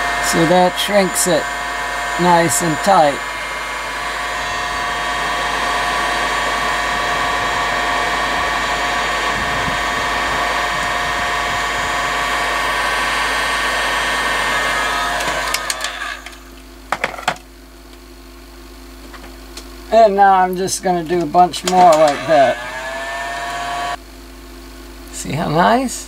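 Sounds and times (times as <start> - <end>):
heat gun running: 0.0 - 17.4, 19.1 - 24.0
sharp clicks: 21.2 - 22.4.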